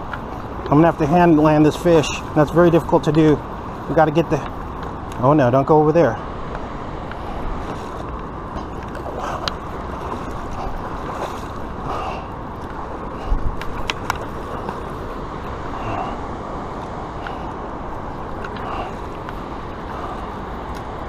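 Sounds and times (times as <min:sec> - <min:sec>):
river water rushing: 0:00.0 - 0:21.0
wind: 0:00.0 - 0:21.0.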